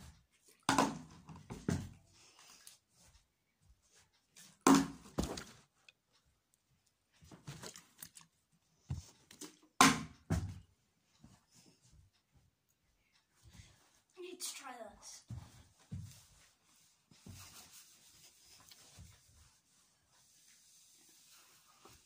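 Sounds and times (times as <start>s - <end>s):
plastic bottle thudding on wood: 4.7s - 5.5s.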